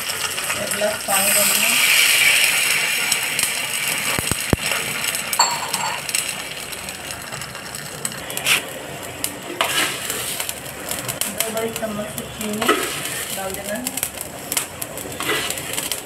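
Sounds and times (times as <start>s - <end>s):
water hissing in a pan: 0.0s - 16.0s.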